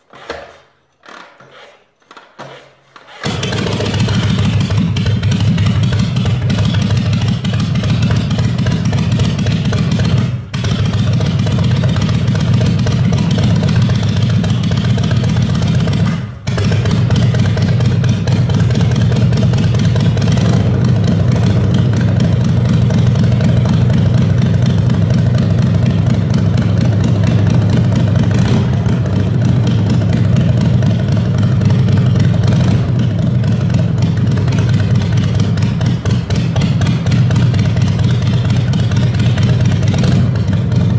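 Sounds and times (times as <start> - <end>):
motorcycle engine running: 3.2 - 40.9.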